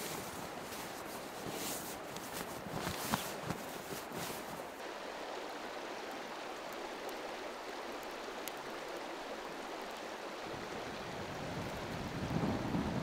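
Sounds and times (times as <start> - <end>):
river rushing: 0.0 - 13.0
faint ticks: 8.0 - 8.7.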